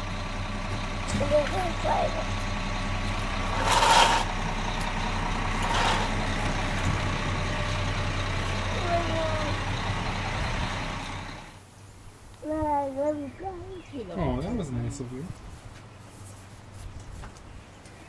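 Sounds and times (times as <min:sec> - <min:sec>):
heavy truck engine running: 0:00.0 - 0:11.7.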